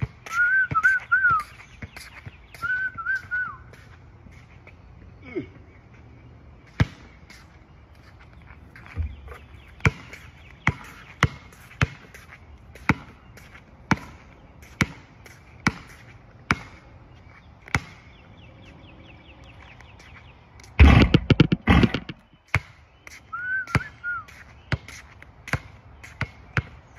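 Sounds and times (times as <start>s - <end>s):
basketball bouncing on hard court: 6.7s - 7.2s, 8.9s - 16.9s, 17.6s - 18.0s, 20.8s - 22.8s, 24.7s - 26.8s.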